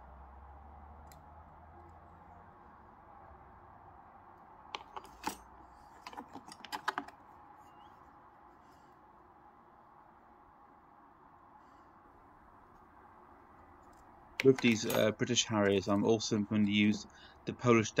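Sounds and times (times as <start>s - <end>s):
low steady hum: 0.0s - 18.0s
model jets clicking and tapping: 6.0s - 7.2s.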